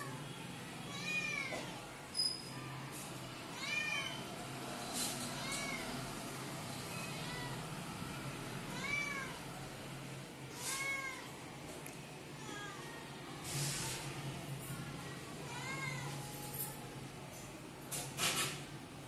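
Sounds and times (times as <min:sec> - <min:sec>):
cat meowing: 0:08.7 - 0:09.4.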